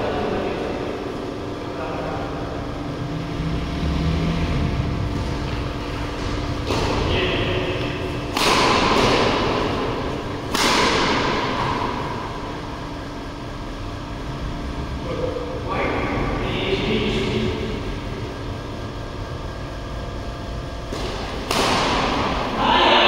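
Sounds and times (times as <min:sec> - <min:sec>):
badminton shuttlecock hits: 0:06.2 - 0:07.0, 0:07.7 - 0:12.2, 0:20.9 - 0:22.5.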